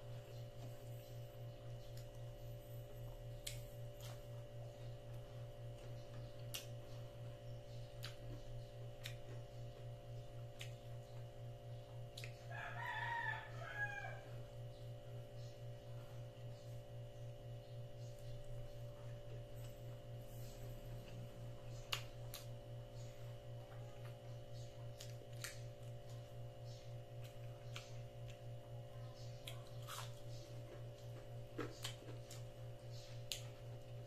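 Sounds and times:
low hum with faint pulse: 0:00.0 - 0:34.0
rooster crowing: 0:12.5 - 0:14.5.

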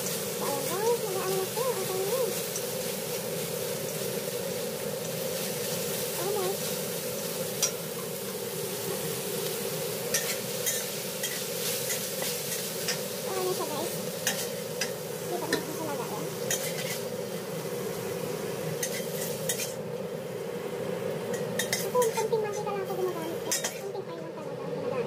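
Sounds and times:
meat sizzling in hot oil: 0:00.0 - 0:25.0
spatula scraping a wok: 0:09.4 - 0:15.8, 0:16.4 - 0:17.7, 0:18.7 - 0:19.8, 0:21.3 - 0:22.7, 0:23.4 - 0:24.0.

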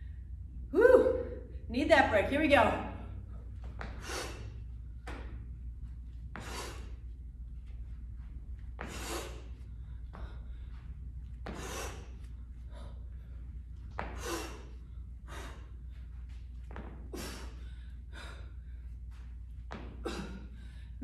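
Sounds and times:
person breathing hard: 0:03.1 - 0:04.7, 0:06.3 - 0:07.1, 0:08.8 - 0:16.1, 0:17.1 - 0:19.1.

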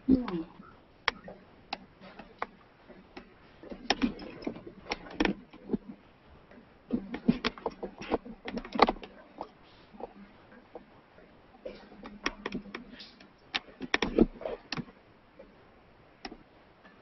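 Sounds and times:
handling clicks and knocks: 0:01.0 - 0:06.0, 0:06.9 - 0:10.8, 0:11.7 - 0:15.0.

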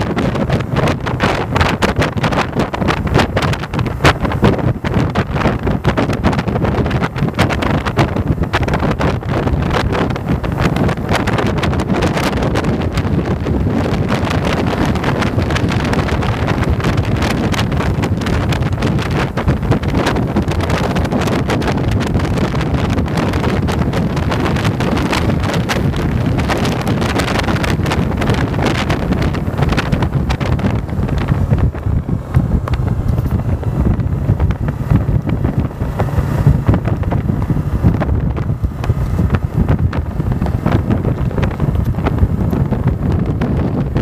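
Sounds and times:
motorcycle engine running: 0:00.0 - 0:44.0
wind buffeting microphone: 0:00.0 - 0:44.0.

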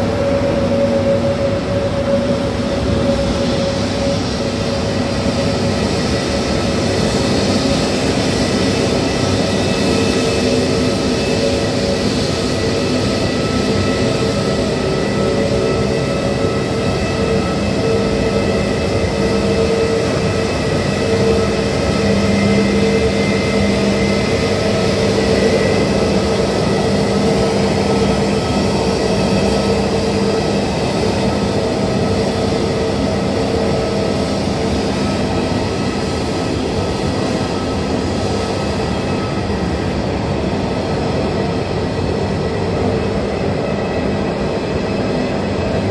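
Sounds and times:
jet engines hum and whine: 0:00.0 - 0:45.9.

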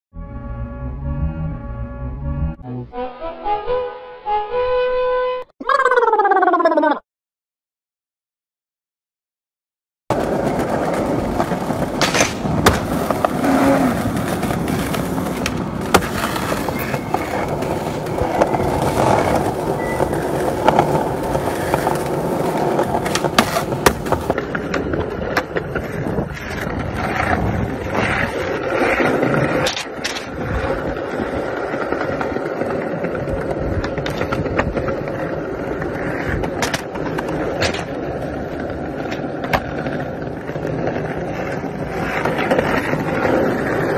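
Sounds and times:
skateboard popping and landing clacks: 0:10.1 - 0:30.9, 0:31.6 - 0:43.9
skateboard wheels rolling on concrete: 0:10.1 - 0:43.9.

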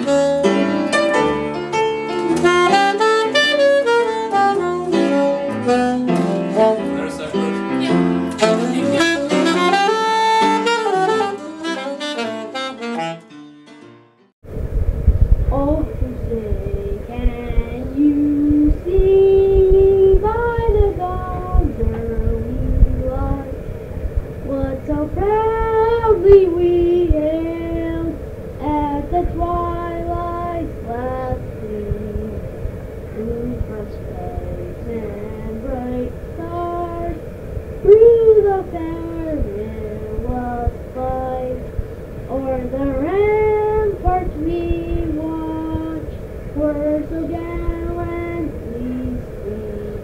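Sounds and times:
person singing long notes: 0:02.4 - 0:12.4, 0:15.5 - 0:23.6, 0:24.5 - 0:32.5, 0:33.2 - 0:37.2, 0:37.9 - 0:41.7, 0:42.3 - 0:50.0
low background rumble: 0:14.4 - 0:50.0.

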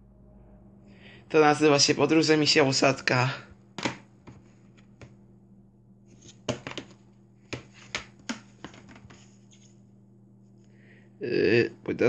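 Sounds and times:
faint low hum: 0:00.0 - 0:12.0
hands handling a book and disc: 0:03.8 - 0:05.2, 0:06.1 - 0:09.8.

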